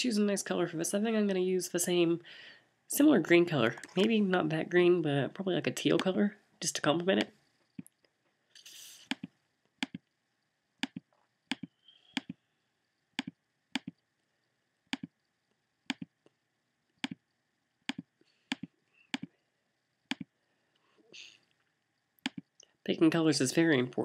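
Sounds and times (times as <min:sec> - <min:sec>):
computer mouse clicking: 0:09.0 - 0:10.0, 0:10.8 - 0:12.4, 0:13.2 - 0:14.0, 0:17.9 - 0:19.3.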